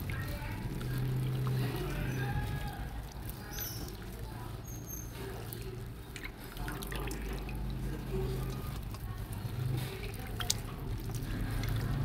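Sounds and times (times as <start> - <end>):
water splashing and dripping: 0.0 - 12.0.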